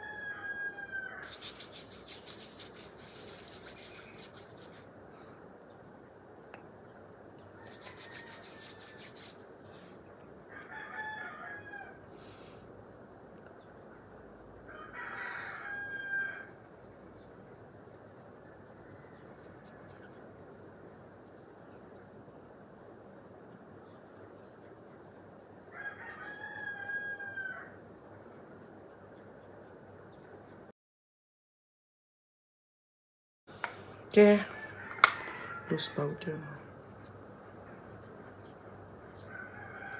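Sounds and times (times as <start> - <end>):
rooster crowing: 0.0 - 1.3, 7.6 - 9.4, 10.5 - 12.1, 14.7 - 16.6, 25.7 - 27.8, 34.4 - 36.2, 39.2 - 39.9
steady background hiss: 1.1 - 10.5.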